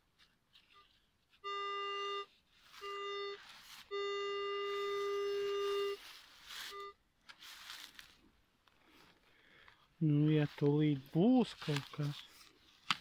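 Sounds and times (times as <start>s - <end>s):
metal detector buzzy tone: 1.4s - 7.0s.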